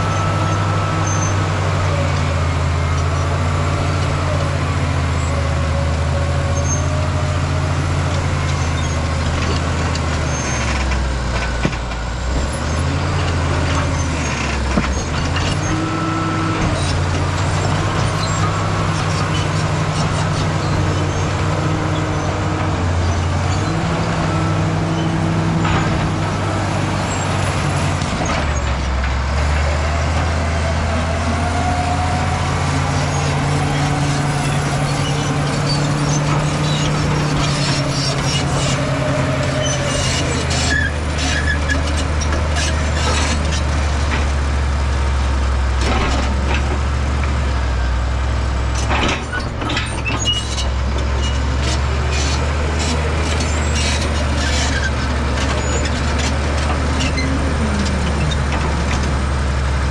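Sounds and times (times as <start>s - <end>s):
bulldozer diesel engine under load: 0.0s - 59.9s
clanks of rock and steel tracks: 8.0s - 44.5s, 48.7s - 59.9s.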